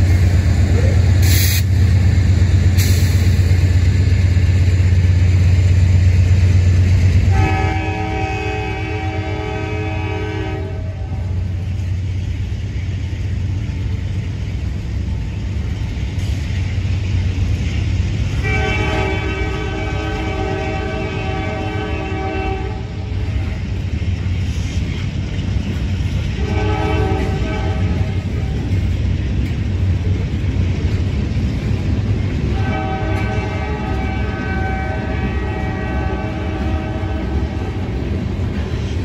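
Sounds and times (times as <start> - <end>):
freight train rumbling: 0.0 - 39.0
locomotive horn blasts: 7.3 - 11.2, 18.3 - 23.0, 26.4 - 28.3, 32.5 - 37.8.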